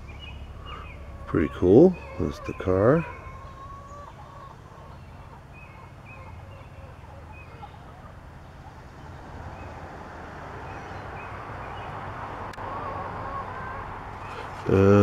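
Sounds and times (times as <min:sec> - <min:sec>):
low steady hum: 0:00.0 - 0:11.6.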